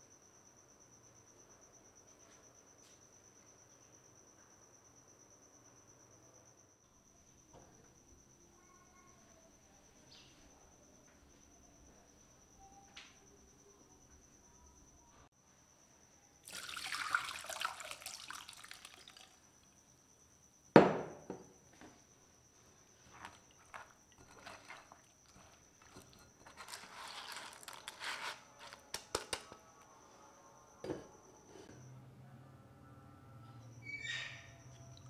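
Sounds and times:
running liquid: 16.5 - 19.4, 23.3 - 27.9
wet pulp squelching through strainer: 23.1 - 28.4
faint high whine: 27.6 - 35.0.

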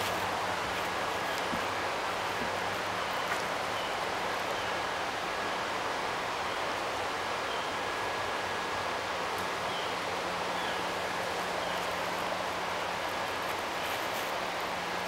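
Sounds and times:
flowing river water: 0.0 - 15.0.

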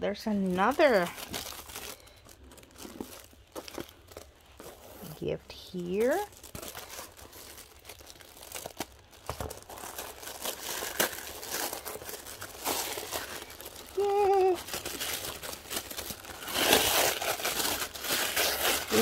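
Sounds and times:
tissue paper crinkling: 0.3 - 19.0
person humming: 14.0 - 14.6.

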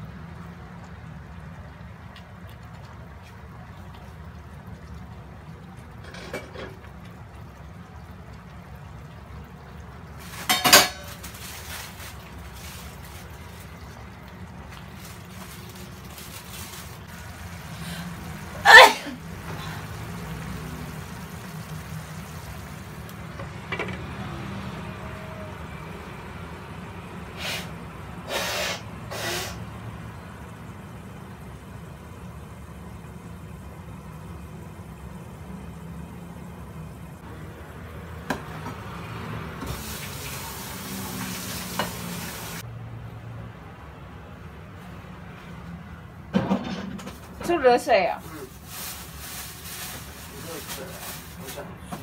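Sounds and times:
chicken sizzling in frying pan: 10.1 - 24.8, 38.8 - 42.6.

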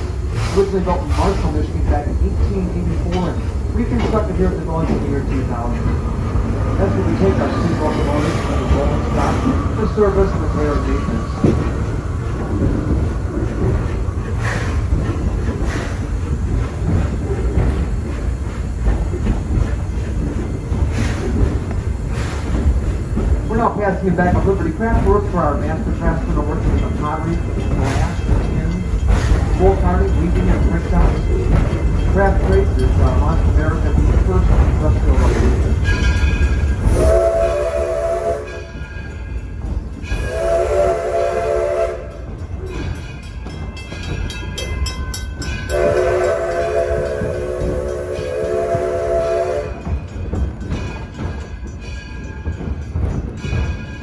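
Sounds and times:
train running gear rumble: 0.0 - 54.0
steam exhaust puffs: 6.3 - 32.8, 39.9 - 43.2, 45.6 - 52.0
steam locomotive whistle: 36.9 - 38.7, 40.1 - 42.2, 45.7 - 49.9.

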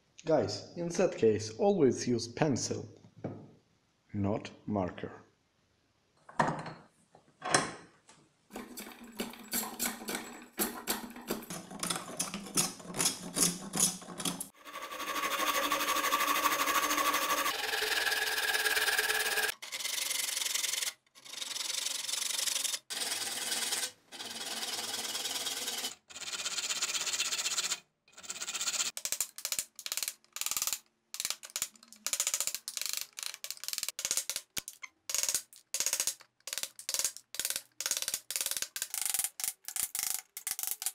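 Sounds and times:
hand saw rasping through wood: 14.6 - 19.5.

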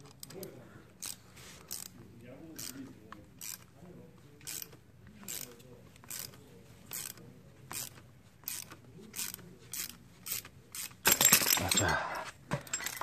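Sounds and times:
ratchet wrench clicking: 1.0 - 2.0, 2.6 - 2.8, 3.4 - 3.7, 4.4 - 11.5.

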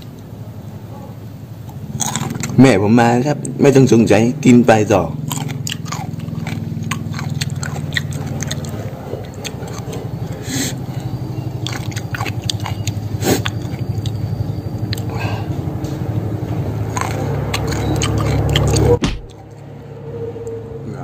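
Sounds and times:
person chewing crunchy salad: 1.7 - 2.6, 5.2 - 19.6
wet mouth clicks: 5.3 - 14.2, 14.8 - 15.2, 16.9 - 19.6.

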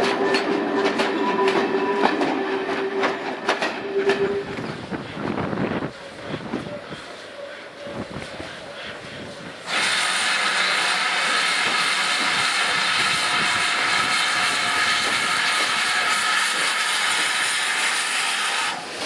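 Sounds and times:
hiss of escaping steam: 5.9 - 19.0.

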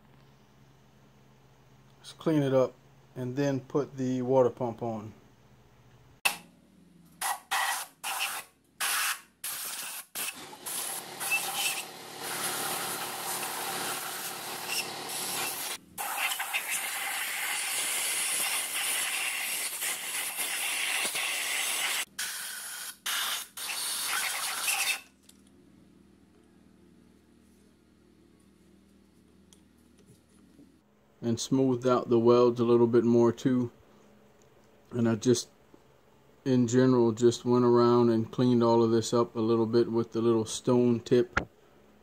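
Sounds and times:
compressed air blow gun hissing: 7.6 - 24.9.

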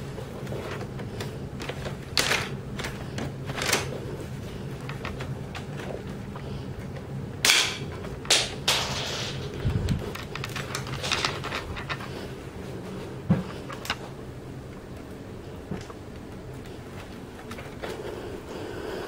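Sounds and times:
plastic mechanism clicks and rattles: 0.6 - 3.9, 9.6 - 12.1.

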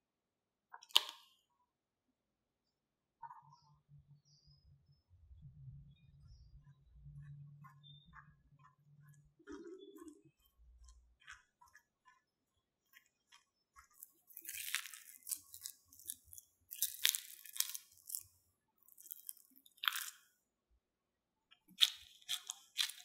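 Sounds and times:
spatula mashing potato in bowl: 6.2 - 20.3, 21.6 - 23.0
spatula scraping bowl: 7.2 - 15.4.

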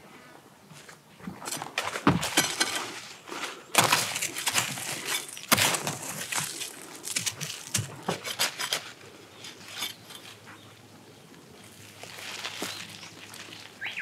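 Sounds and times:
soil crunching off roots: 1.2 - 10.5, 11.6 - 14.0
hand tool scraping sandy soil: 1.4 - 10.4.

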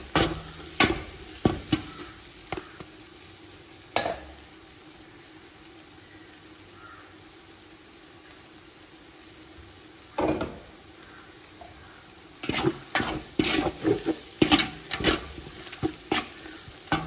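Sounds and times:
onions sizzling in oil: 0.0 - 17.0
metal ladle scraping pot: 12.4 - 17.0.

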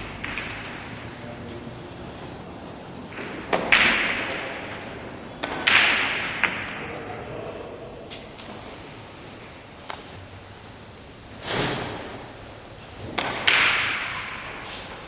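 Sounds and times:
cue striking ball: 0.0 - 1.0, 3.2 - 4.8, 5.4 - 6.8, 13.1 - 14.6
billiard balls clicking and knocking: 0.0 - 6.9, 11.9 - 15.0.

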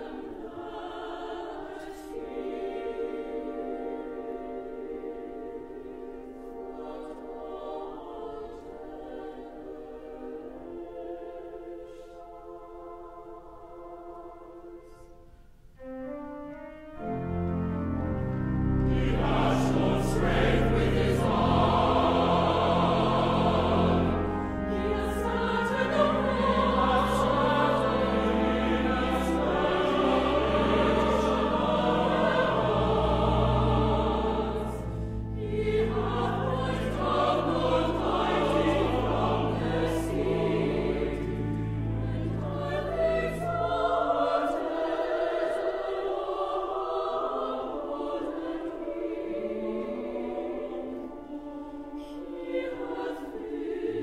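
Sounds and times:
mixed choir singing: 0.0 - 16.2, 17.0 - 54.0
low organ notes: 15.8 - 44.9.

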